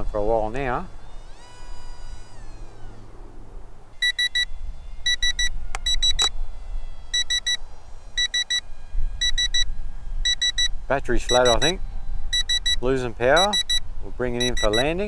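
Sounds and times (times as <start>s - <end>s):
high beeps: 4.0s - 4.5s, 5.1s - 6.3s, 7.2s - 7.6s, 8.2s - 8.6s, 9.2s - 9.7s, 10.3s - 10.7s, 11.3s - 11.7s, 12.3s - 12.8s, 13.4s - 13.8s, 14.4s - 14.8s.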